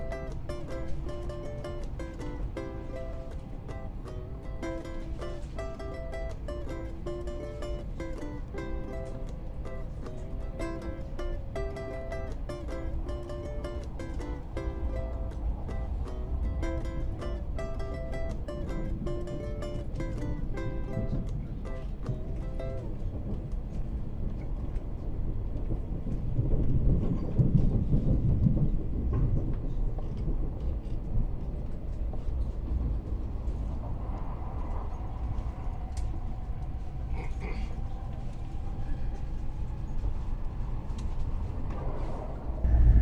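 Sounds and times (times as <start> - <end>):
train rumble and rail noise: 0.0 - 43.0
faint whine: 42.1 - 43.0.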